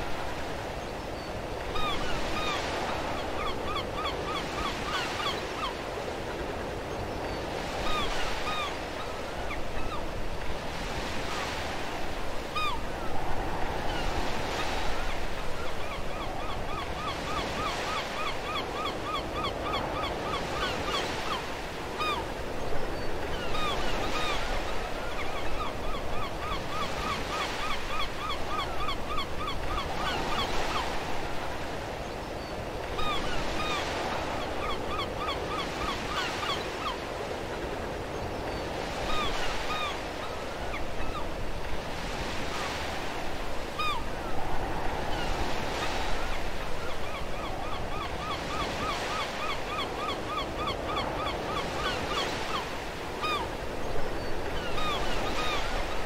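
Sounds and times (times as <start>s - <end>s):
birds calling: 0.2s - 12.9s, 14.0s - 44.2s, 44.8s - 56.0s
ocean surf washing in: 37.4s - 56.0s.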